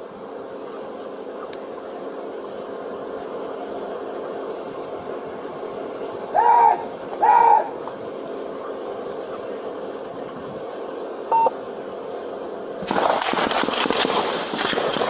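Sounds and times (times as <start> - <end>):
faint steady hum: 0.0 - 15.0
short electronic beep: 11.3 - 11.5.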